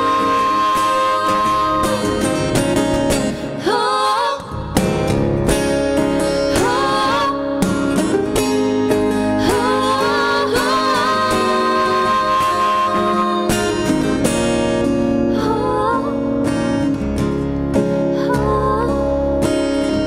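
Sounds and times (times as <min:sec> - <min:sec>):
two singers in harmony: 0:00.0 - 0:02.6, 0:03.3 - 0:05.0, 0:06.4 - 0:14.2, 0:15.3 - 0:16.5, 0:18.1 - 0:19.5
acoustic guitar: 0:00.0 - 0:20.0.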